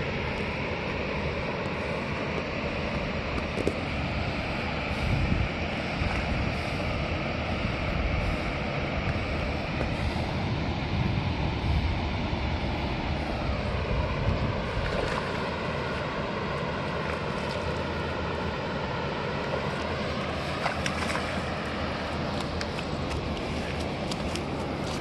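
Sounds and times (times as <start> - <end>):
steady outdoor rush: 0.0 - 25.0
wind buffeting microphone: 0.0 - 25.0.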